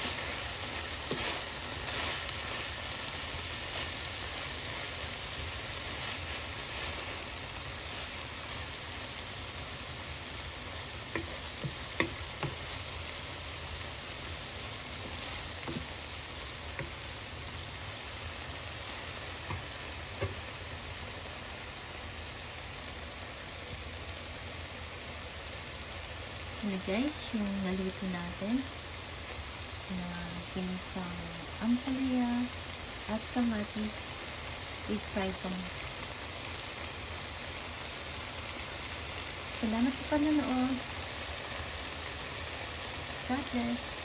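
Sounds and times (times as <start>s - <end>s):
food sizzling in oil: 0.0s - 44.0s
sharp pops of frying oil: 10.7s - 13.0s, 15.0s - 17.2s, 19.1s - 20.7s.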